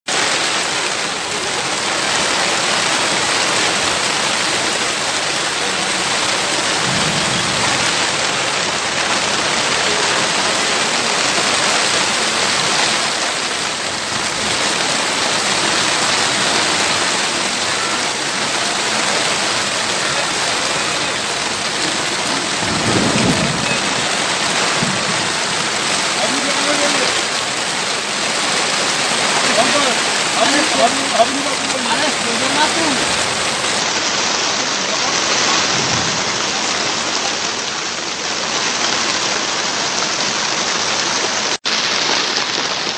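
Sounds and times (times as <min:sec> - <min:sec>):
heavy rain on a wet road: 0:00.1 - 0:42.9
low rumbles: 0:04.9 - 0:10.4.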